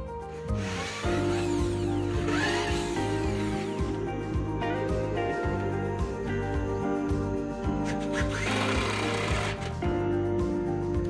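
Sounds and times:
background music with beat: 0:00.0 - 0:11.0
cordless drill grinding: 0:00.6 - 0:03.9, 0:07.8 - 0:09.8.

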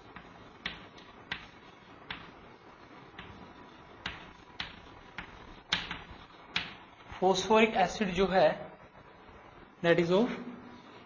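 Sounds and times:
chalk tapping on blackboard: 0:00.0 - 0:06.9
faint room hiss: 0:00.0 - 0:11.0.

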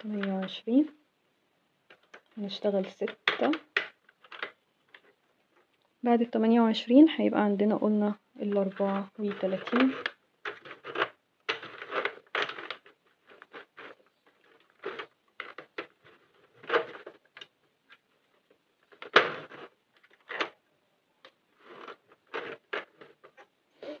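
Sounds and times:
knitting machine clicks and scrapes: 0:08.6 - 0:17.5, 0:21.6 - 0:23.5.

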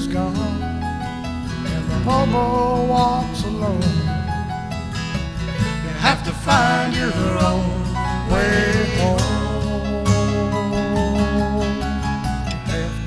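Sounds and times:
acoustic guitar strumming: 0:00.0 - 0:13.0
sliding melody line: 0:05.5 - 0:13.0.

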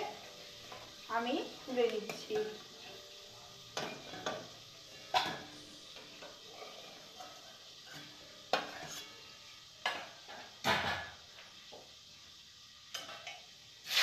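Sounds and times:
oil sizzling: 0:00.0 - 0:14.0
metal spatula scraping a pan: 0:02.0 - 0:11.1.

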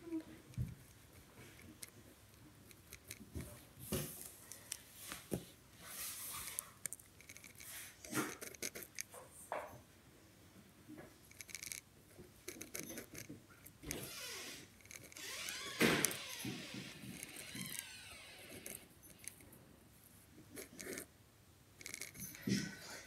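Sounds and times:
pen scratching on paper: 0:20.6 - 0:21.1.

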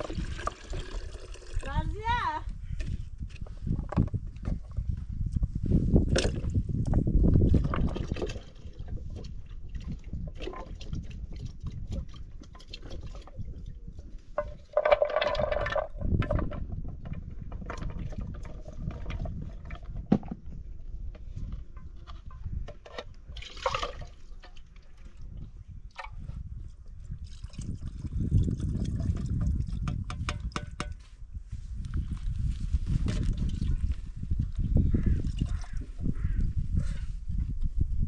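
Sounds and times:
liquid pouring into a jug: 0:00.0 - 0:01.8, 0:07.4 - 0:16.2, 0:23.3 - 0:26.3, 0:26.9 - 0:30.7, 0:34.6 - 0:35.8.

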